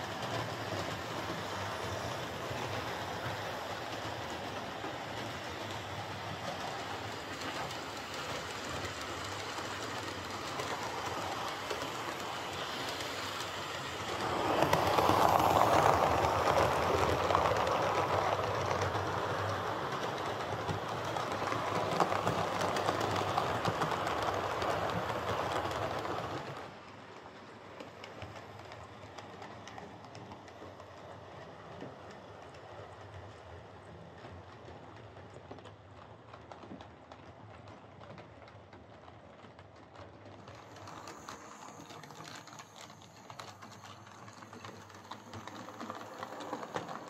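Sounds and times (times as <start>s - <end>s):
wheels rumbling on rail: 0.0s - 47.0s.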